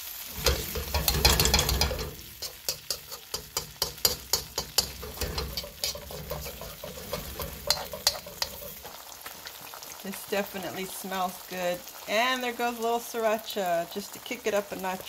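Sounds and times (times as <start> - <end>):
tofu sizzling in a wok: 0.0 - 15.0
metal spatula scraping a pan: 0.2 - 9.6
spatula striking pan: 0.3 - 9.0.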